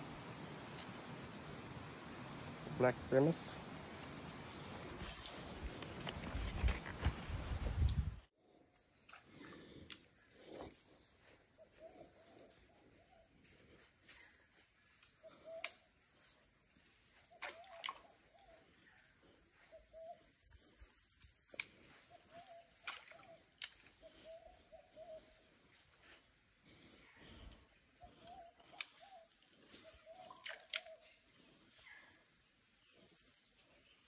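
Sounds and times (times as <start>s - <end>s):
faint warbling bird calls: 8.8s - 34.0s.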